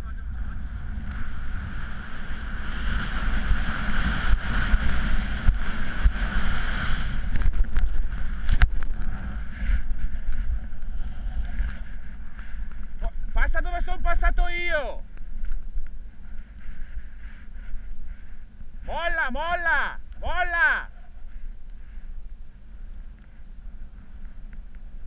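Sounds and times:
wind buffeting microphone: 0.0 - 19.0
snowboard sliding over snow: 0.2 - 19.1.

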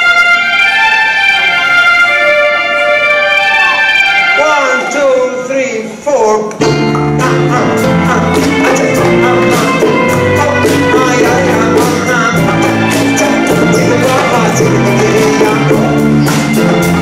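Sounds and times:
acoustic guitar: 6.6 - 17.0
bass guitar: 6.6 - 17.0.

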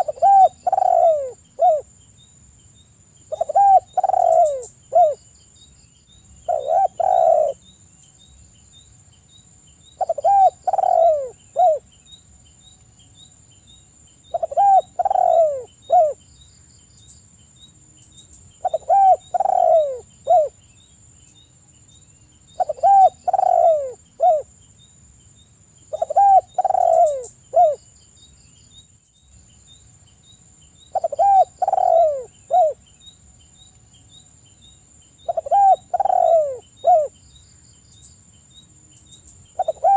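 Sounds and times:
dove cooing: 0.0 - 1.9, 3.3 - 5.2, 6.5 - 7.6, 10.0 - 11.8, 14.3 - 16.2, 18.6 - 20.6, 22.6 - 24.5, 25.9 - 27.8, 30.9 - 32.8, 35.2 - 37.2, 39.6 - 39.9.

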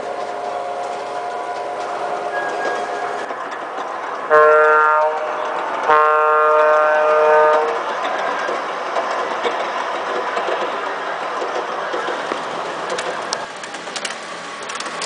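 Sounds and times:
model train running: 0.0 - 15.0
model train horn blasts: 4.3 - 7.9.

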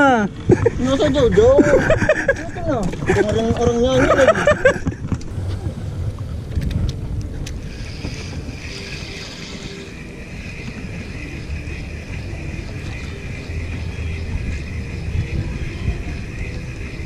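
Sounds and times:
wind rumbling on microphone: 0.3 - 17.0
faint high whine: 5.2 - 17.0.

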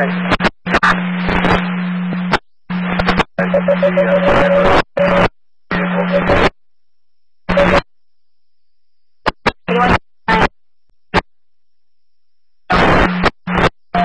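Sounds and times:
radio static bursts: 0.0 - 6.5, 7.5 - 7.8, 9.2 - 10.5, 12.7 - 14.0.

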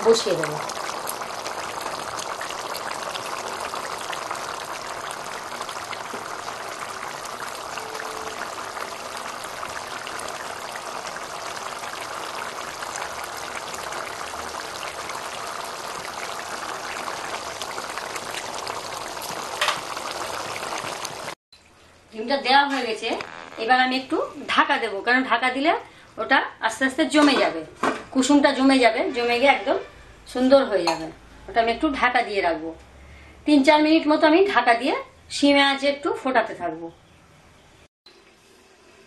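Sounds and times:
curry bubbling in a pan: 0.0 - 21.4.

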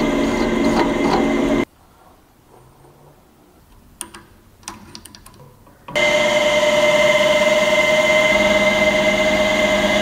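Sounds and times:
drill press humming and whining: 0.0 - 1.7, 6.0 - 10.0.

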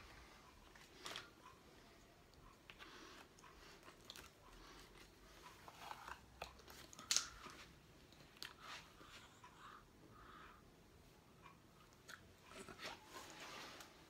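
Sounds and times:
soft rubbing of dive mask: 12.7 - 14.0.

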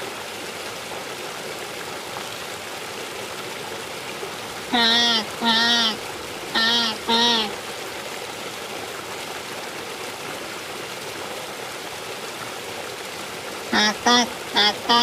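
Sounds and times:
rushing water: 0.0 - 15.0
short bird call: 4.7 - 6.0, 6.6 - 7.5.

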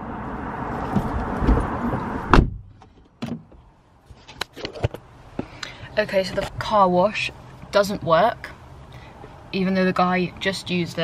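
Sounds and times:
outside noise: 0.0 - 11.0
car door shutting: 0.8 - 3.6.

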